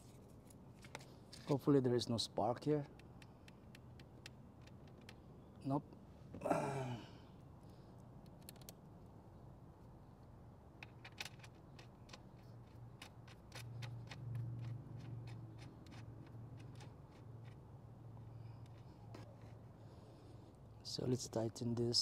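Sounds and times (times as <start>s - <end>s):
man sighing: 6.4s - 7.3s.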